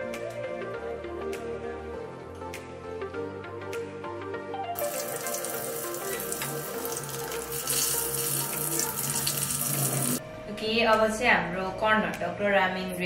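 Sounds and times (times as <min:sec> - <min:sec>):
background music: 0:00.0 - 0:13.0
food sizzling in hot oil: 0:04.8 - 0:10.2.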